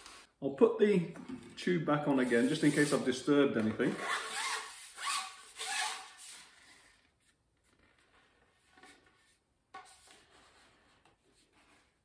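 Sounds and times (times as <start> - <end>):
fishing pole rubbing scrapes: 2.2 - 3.1.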